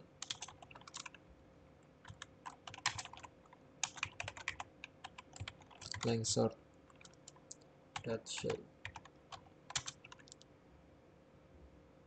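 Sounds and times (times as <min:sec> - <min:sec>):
computer keyboard typing: 0:00.2 - 0:01.2, 0:02.0 - 0:06.2, 0:06.9 - 0:10.4.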